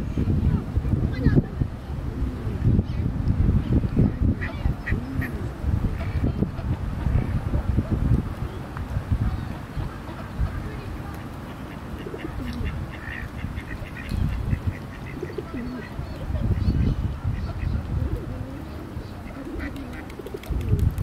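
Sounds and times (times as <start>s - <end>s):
pigeons cooing: 4.2s - 6.5s, 11.6s - 21.0s.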